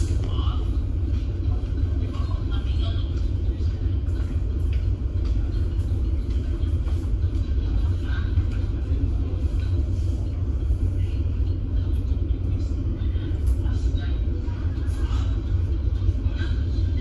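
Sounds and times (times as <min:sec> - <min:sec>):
ferry engines rumbling: 0:00.0 - 0:17.0.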